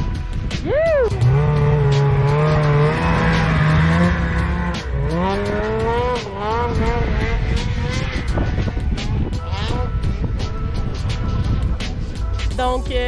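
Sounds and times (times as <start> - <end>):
snowmobile engine revving: 0.7 - 11.6.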